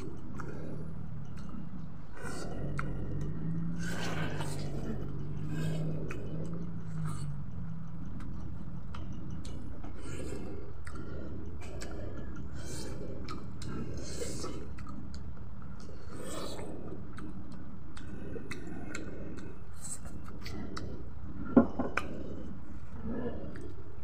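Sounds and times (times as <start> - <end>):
open-mouthed chewing: 0.0 - 24.0
lip and tongue smacking: 2.2 - 21.4.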